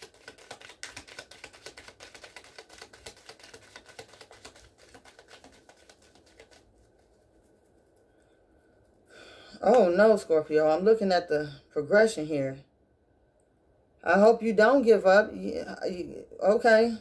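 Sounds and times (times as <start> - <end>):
cards being shuffled: 0.0 - 8.0.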